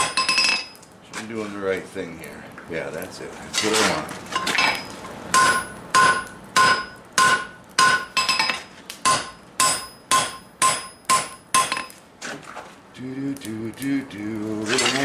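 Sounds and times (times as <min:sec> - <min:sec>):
hammer striking metal on anvil: 0:00.0 - 0:00.7, 0:04.4 - 0:11.9.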